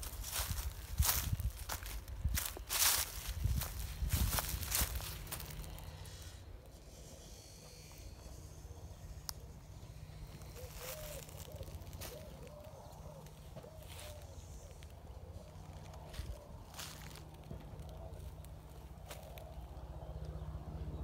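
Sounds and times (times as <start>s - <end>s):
footsteps on dry leaves: 0.0s - 6.4s, 7.0s - 19.8s
low wavering call: 6.8s - 16.6s.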